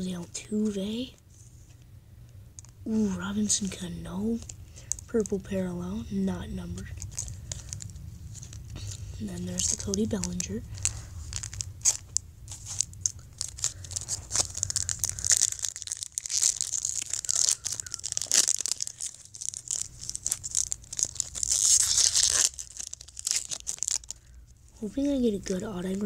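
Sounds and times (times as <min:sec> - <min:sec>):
foil wrapper crinkling and tearing: 0:04.3 - 0:05.4, 0:06.6 - 0:24.7.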